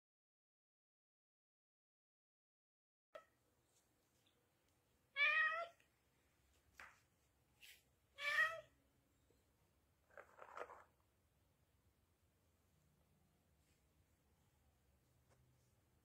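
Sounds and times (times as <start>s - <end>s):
cat meowing: 5.2s - 5.8s, 8.2s - 8.8s.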